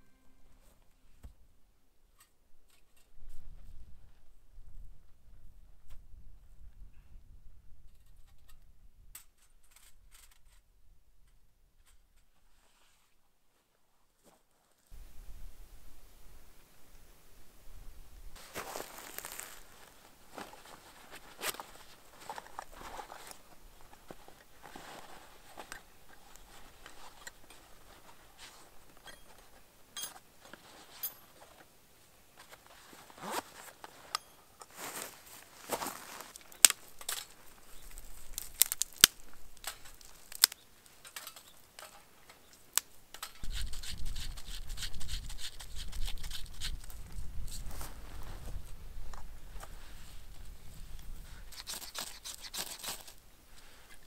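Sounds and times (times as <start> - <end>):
zip: 33.0 - 33.8, 51.4 - 53.2.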